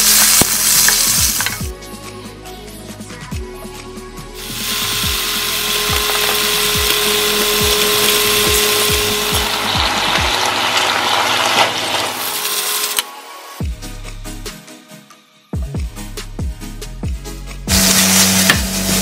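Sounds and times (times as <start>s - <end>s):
electric motor appliance running: 4.4s - 13.1s, 17.7s - 19.0s.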